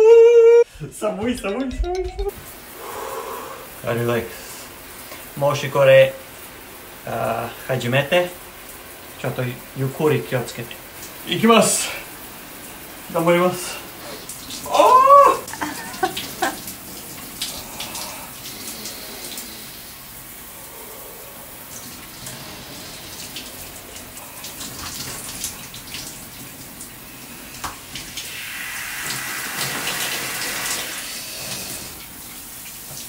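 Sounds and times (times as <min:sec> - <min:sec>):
shower head spraying water: 0:13.1 - 0:33.0
water splashes: 0:13.1 - 0:33.0.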